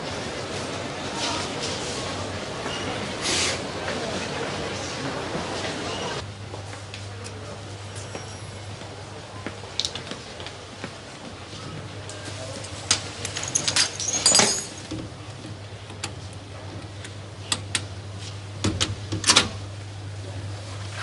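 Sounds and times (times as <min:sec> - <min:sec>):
locker handle metallic rattle: 0:13.2 - 0:14.9.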